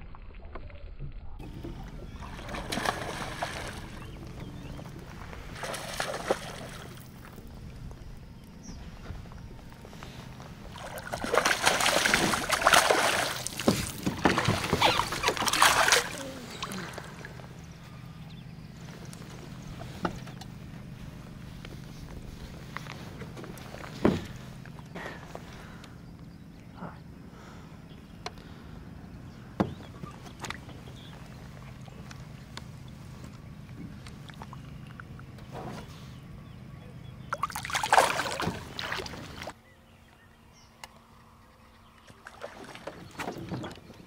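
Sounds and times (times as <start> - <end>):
knocks and clicks in boat: 0.5 - 17.5, 18.9 - 26.3, 29.4 - 36.0, 41.9 - 44.0
steady low hum: 1.2 - 44.0
fish splashing at water surface: 2.2 - 4.0, 10.8 - 17.0, 37.3 - 39.5.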